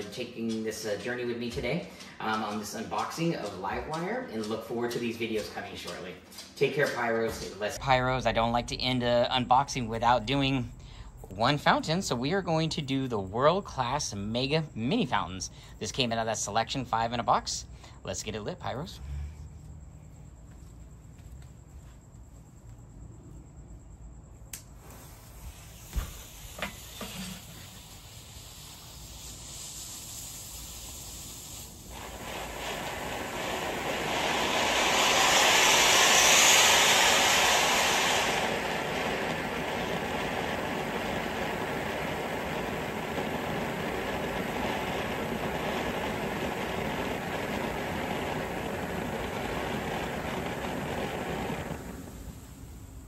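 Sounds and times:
firework fuse hissing: 0.0 - 6.0, 6.7 - 19.0, 24.4 - 53.0
rush of spraying sparks: 0.0 - 6.0, 24.6 - 53.0
sharp clicks: 0.0 - 7.5.

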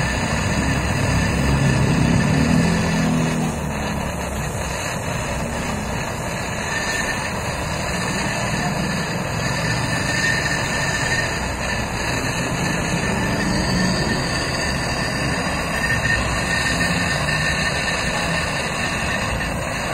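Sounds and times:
gas torch hissing: 0.0 - 19.9.

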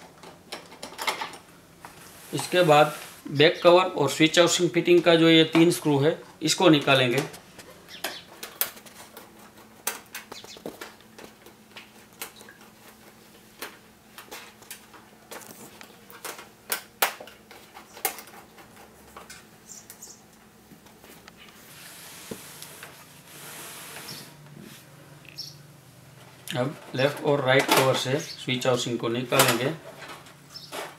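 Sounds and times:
rustling hiss of handling: 1.9 - 3.3.

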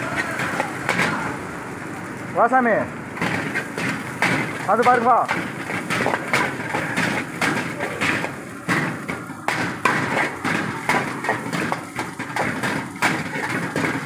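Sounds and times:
ladle scraping and clanking on wok: 3.2 - 14.0.

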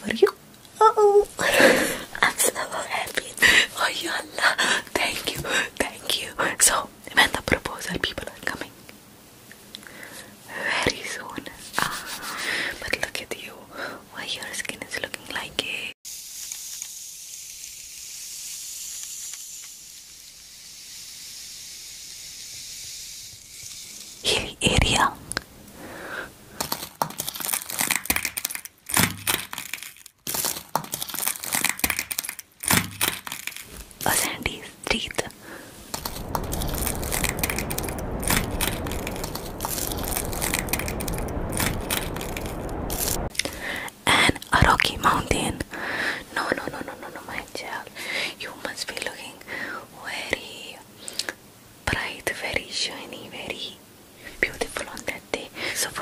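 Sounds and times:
steady high hiss: 0.0 - 27.0, 32.7 - 56.0
deep rumble: 34.0 - 43.8.

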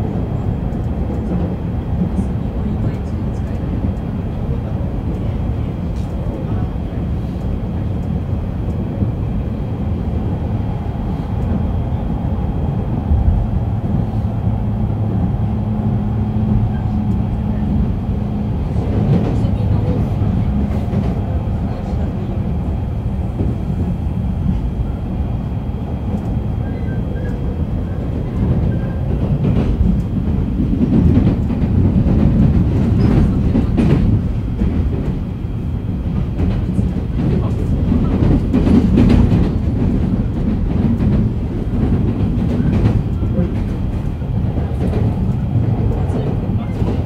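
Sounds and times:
train wheels rumbling on rails: 0.0 - 47.0
clacks over rail joints: 26.1 - 35.2, 36.0 - 47.0.

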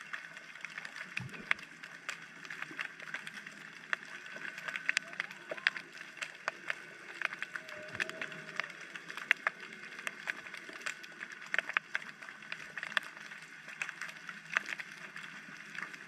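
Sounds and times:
underwater clicks and snaps: 0.0 - 16.0.

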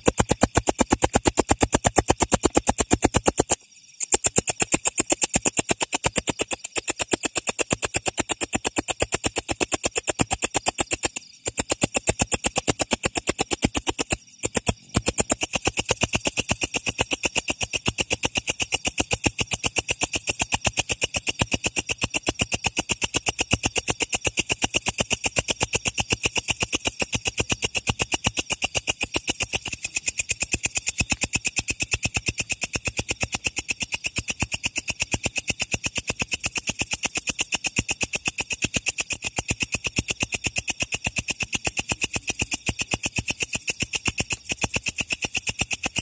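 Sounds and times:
katydid chirping: 0.0 - 17.8, 25.9 - 33.4.

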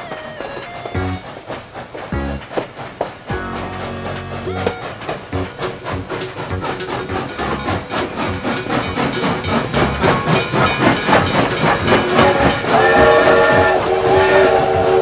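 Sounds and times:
steam train chuffing: 0.0 - 15.0
steam whistle: 3.3 - 6.0, 10.0 - 15.0.

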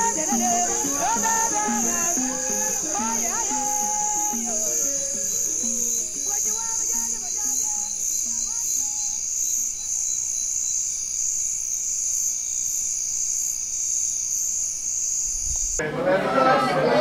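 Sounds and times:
soft melody: 0.0 - 7.4
insects chorus shrill: 0.0 - 15.8
pulsing insect trill: 0.0 - 15.8.

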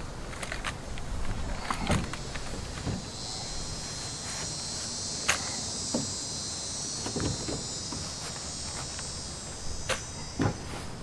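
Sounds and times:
high insect buzz: 1.3 - 11.0.

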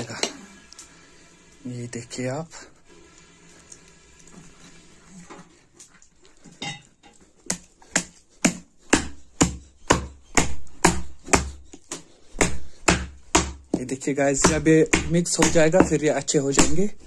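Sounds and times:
wooden mallet pounding meat on stone: 7.4 - 17.0.

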